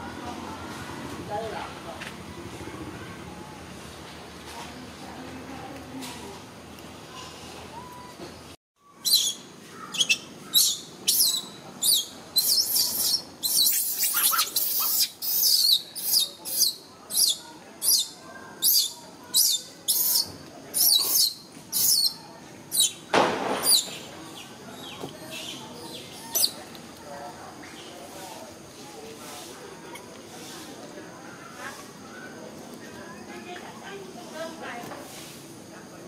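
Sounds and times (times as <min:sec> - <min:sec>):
bird chirping: 0:08.8 - 0:26.6.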